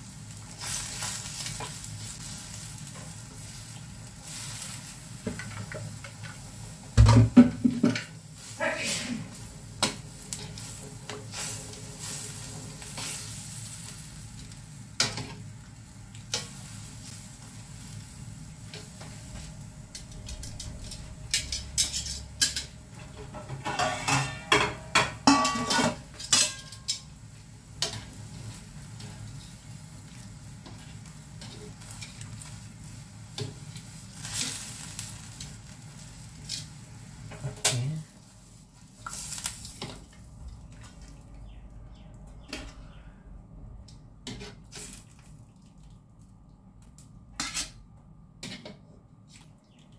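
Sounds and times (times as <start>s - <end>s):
steady low hum: 18.2s - 23.7s.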